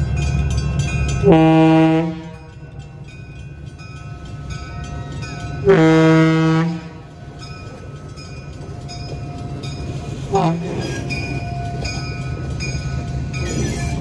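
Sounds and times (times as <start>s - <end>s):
train rumbling: 0.0s - 14.0s
train horn blast: 1.2s - 2.5s, 5.6s - 7.0s.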